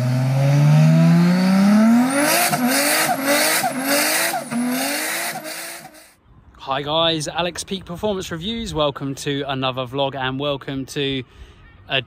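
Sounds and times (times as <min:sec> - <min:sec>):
car engine revving: 0:00.0 - 0:06.1.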